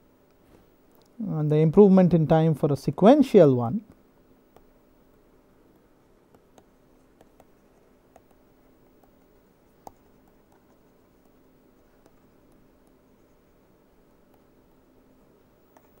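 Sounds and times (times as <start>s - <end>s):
faint steady hum: 0.0s - 16.0s
stylus tapping on pen tablet: 6.3s - 11.4s.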